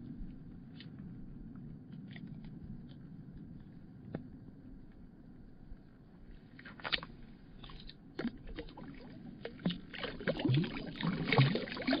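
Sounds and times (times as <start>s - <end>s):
water splashing and sloshing: 6.4s - 12.0s.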